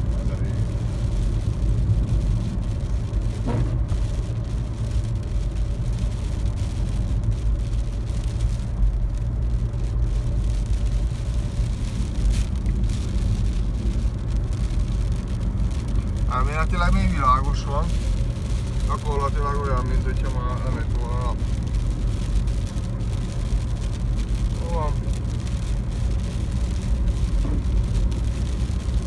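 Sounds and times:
car engine and tyre drone: 0.0s - 29.0s.

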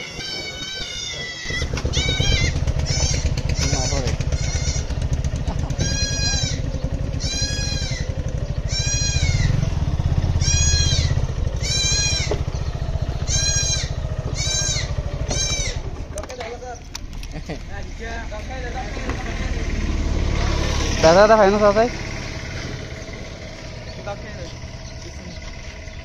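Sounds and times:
high rising and falling call: 0.0s - 16.1s
motorcycle engine rumbling: 0.0s - 26.0s.

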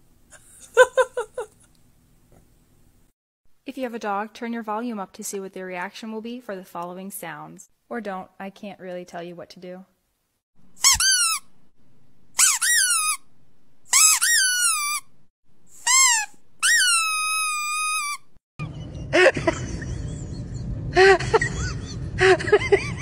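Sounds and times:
high clean squeaks: 10.8s - 11.5s, 12.4s - 13.3s, 13.9s - 15.1s, 15.8s - 18.4s.

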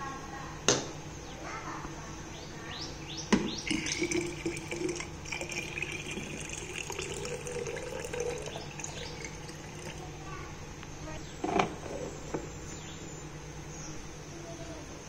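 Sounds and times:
water pouring into tank: 3.6s - 10.1s.

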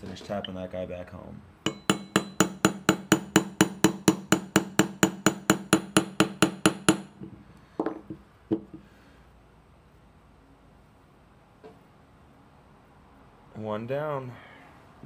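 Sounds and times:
hammer tapping a punch: 1.7s - 8.8s.

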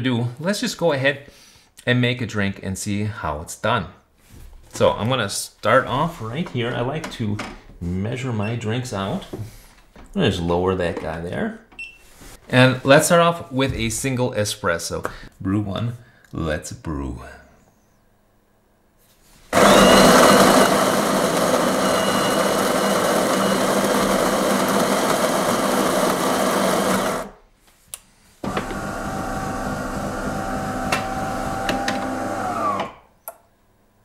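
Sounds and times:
coffee machine humming: 19.6s - 27.3s, 28.4s - 32.9s
coffee grinder grinding beans: 19.6s - 27.4s, 28.5s - 32.9s.

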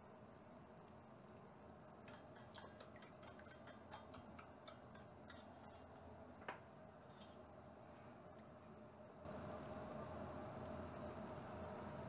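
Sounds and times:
metal spoon clinking in bowl: 2.1s - 6.1s.

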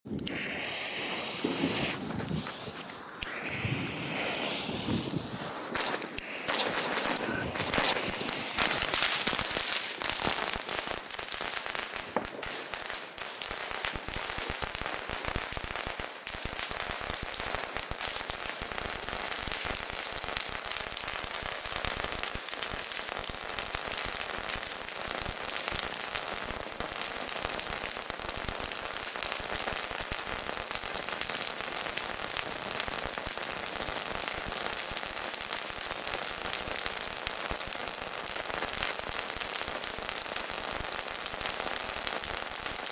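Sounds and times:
crackling fountain fireworks: 0.1s - 42.9s.

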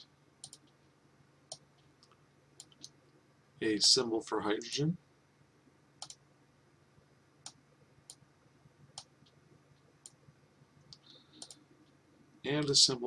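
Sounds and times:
faint low hum: 0.0s - 13.0s
computer mouse clicks: 0.4s - 0.8s, 1.5s - 3.0s, 6.0s - 6.2s, 10.9s - 11.6s.

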